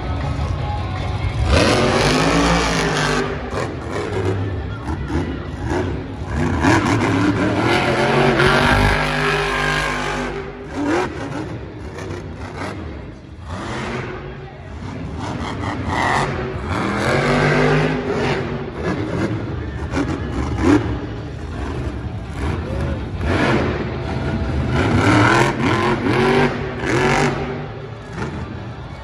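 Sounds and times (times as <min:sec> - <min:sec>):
monster truck engine revving: 0:01.2 - 0:29.0.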